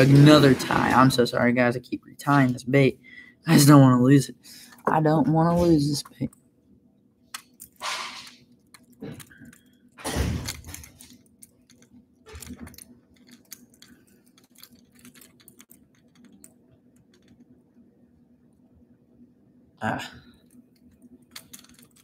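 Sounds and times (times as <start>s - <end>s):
faint steady hum: 0.0s - 22.0s
fishing line clicks and rustles: 10.5s - 17.6s, 20.4s - 22.0s.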